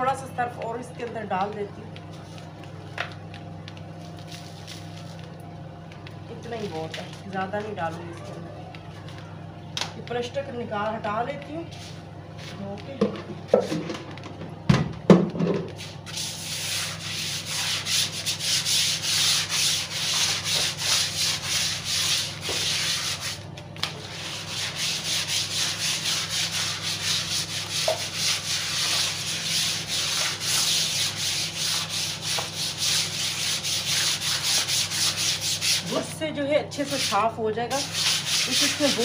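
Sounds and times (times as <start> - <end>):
brush scrubbing wet floor sheet: 15.8 - 36.1, 36.8 - 39.0.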